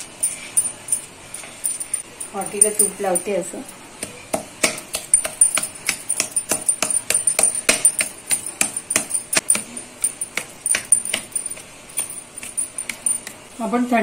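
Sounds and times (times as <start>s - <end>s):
steel bowl tapping on metal board: 4.4s - 11.4s.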